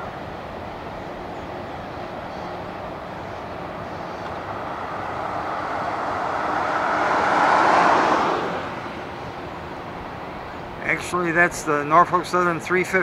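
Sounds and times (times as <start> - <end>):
vehicle passing by: 2.6 - 10.4.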